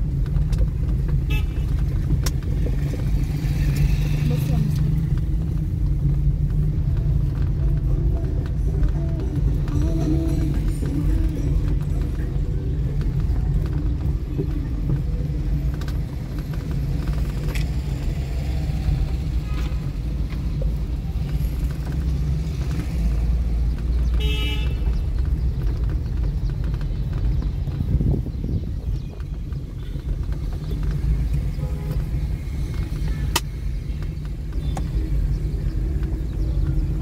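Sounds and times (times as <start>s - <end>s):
traffic engines rumbling: 0.0s - 37.0s
car horn toot: 1.2s - 1.8s, 24.2s - 24.9s, 31.6s - 32.1s.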